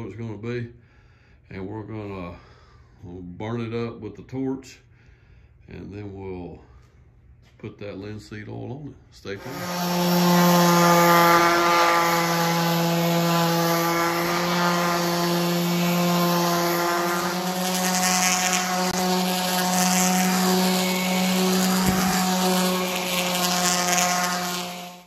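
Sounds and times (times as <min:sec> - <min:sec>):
orbital sander sanding wood: 0:09.3 - 0:25.0.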